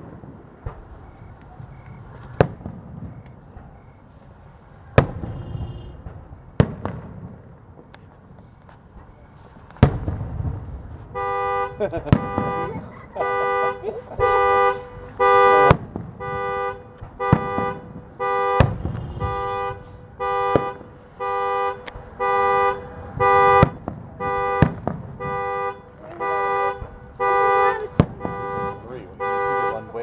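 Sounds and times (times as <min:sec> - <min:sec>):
firework bangs: 0:00.0 - 0:30.0
car alarm two-tone horn honking: 0:05.2 - 0:06.1, 0:11.1 - 0:30.0.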